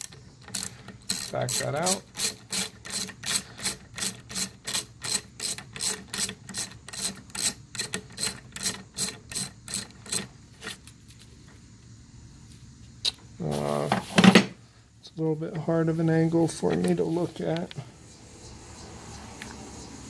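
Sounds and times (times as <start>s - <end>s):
socket ratchet clicking: 0.0s - 10.3s.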